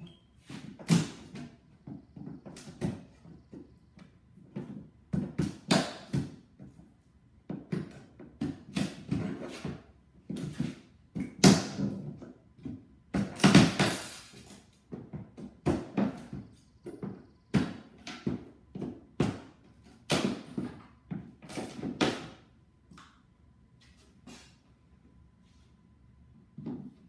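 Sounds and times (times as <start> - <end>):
knocks and thuds on wooden crate: 0.6 - 6.8, 7.4 - 14.0, 14.9 - 22.5.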